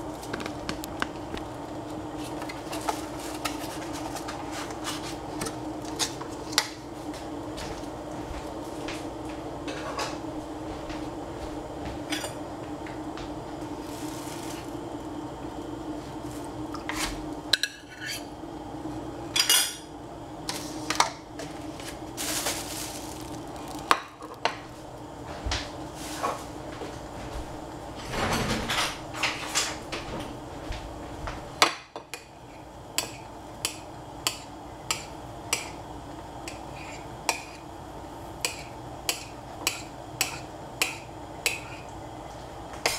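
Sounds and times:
steady low hum: 0.0 - 42.9
kitchen utensils clinking: 12.0 - 12.4, 17.6 - 18.3, 19.3 - 19.9.

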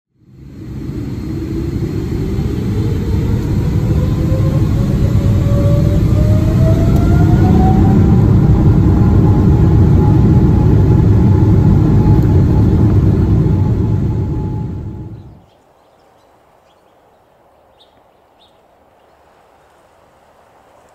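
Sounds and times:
jet engines spooling up: 0.1 - 15.4.

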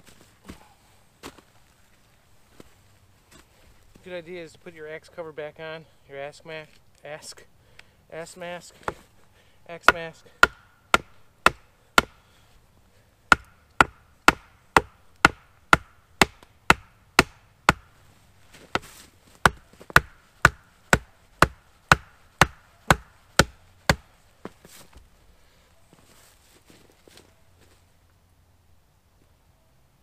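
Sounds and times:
axe striking wood: 9.8 - 12.2, 13.3 - 17.9, 18.7 - 24.1.

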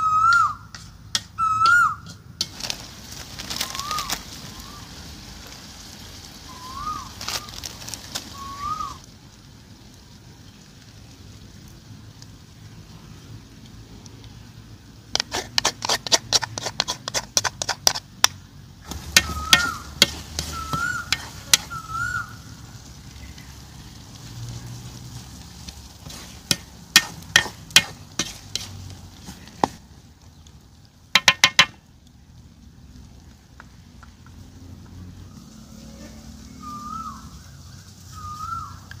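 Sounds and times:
spatula scraping a metal wok: 15.2 - 18.1, 18.9 - 21.8, 26.0 - 29.8.

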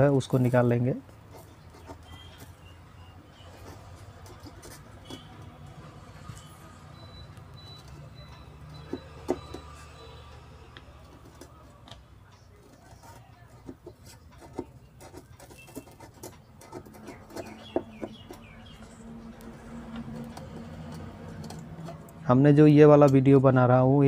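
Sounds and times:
faint clicks and taps: 10.7 - 22.2.

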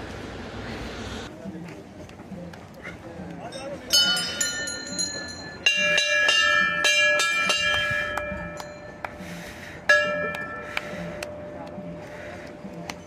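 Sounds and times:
brass bells ringing: 3.5 - 9.1, 9.9 - 11.1.

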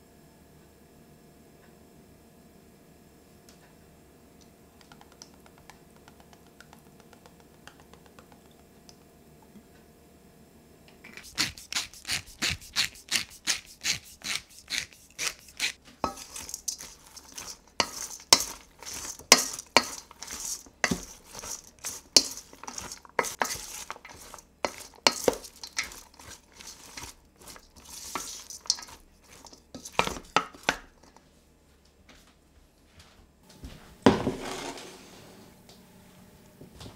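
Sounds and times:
vegetables rustling: 11.0 - 31.2
wooden spoon knocking steel bowl: 15.1 - 31.2.

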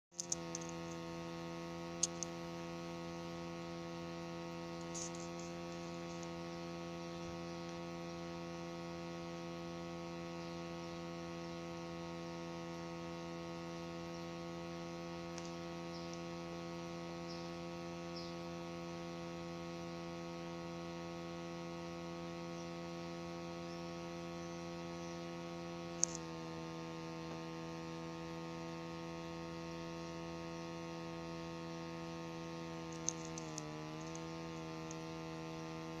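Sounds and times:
electrical hum: 0.0 - 36.0
small clicks: 0.2 - 1.0, 2.0 - 2.4, 4.8 - 6.4, 15.3 - 16.2, 26.0 - 26.3, 32.9 - 35.0.

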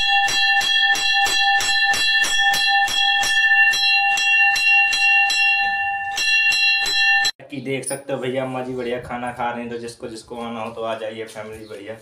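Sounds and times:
bell ringing steadily: 0.0 - 7.4.

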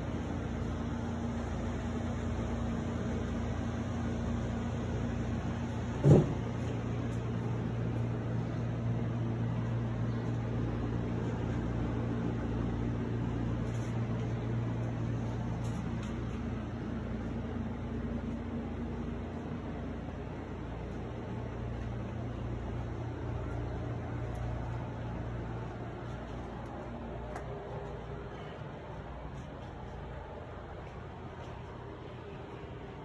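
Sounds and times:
air conditioner humming: 0.0 - 33.0
low thump: 6.0 - 6.5.

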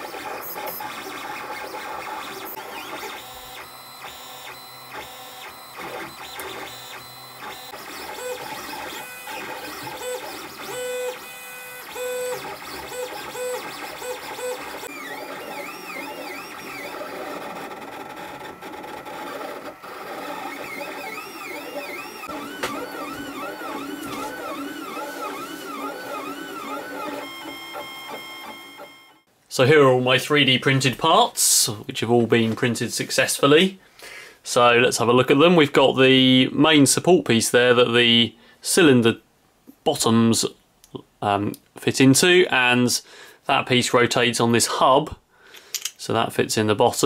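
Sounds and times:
stepper motors whining: 0.0 - 29.3.

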